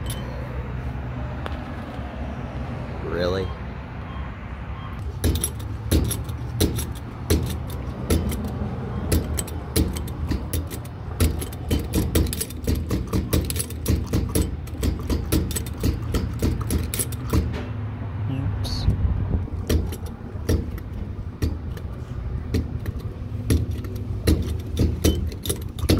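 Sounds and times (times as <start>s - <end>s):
loose metal rattling and clinking: 0.0s - 0.4s, 5.0s - 17.7s, 19.4s - 25.9s
vehicle engine drone: 0.0s - 25.9s.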